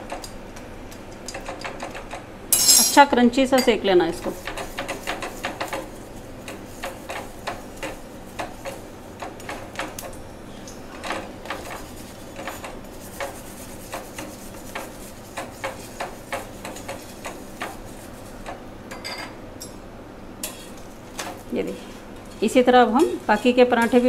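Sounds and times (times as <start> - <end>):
steady frying hiss: 0.0 - 24.0
spoon tapping on griddle: 12.4 - 19.8.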